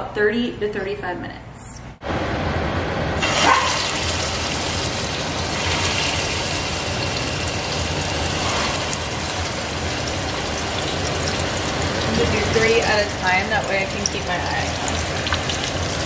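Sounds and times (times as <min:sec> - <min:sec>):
meatballs sizzling in oil: 0:03.2 - 0:16.0.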